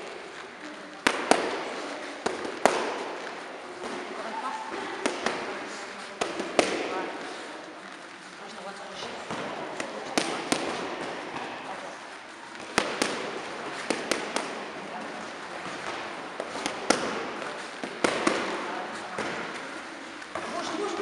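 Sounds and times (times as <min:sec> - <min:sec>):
background hubbub: 0:00.0 - 0:21.0
boxing gloves smacking mitts: 0:01.0 - 0:04.1, 0:04.8 - 0:07.1, 0:09.2 - 0:21.0.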